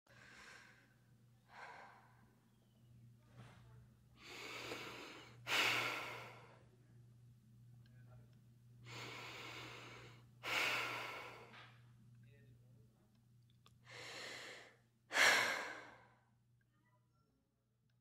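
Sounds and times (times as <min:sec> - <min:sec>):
steady low hum: 0:00.1 - 0:16.6
person breathing heavily: 0:04.2 - 0:06.6, 0:08.8 - 0:11.6, 0:13.8 - 0:16.2.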